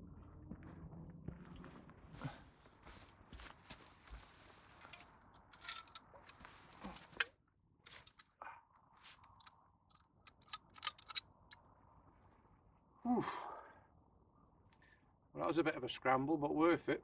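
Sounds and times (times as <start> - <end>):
small metal clicks and scrapes: 4.8 - 8.4, 9.0 - 11.6.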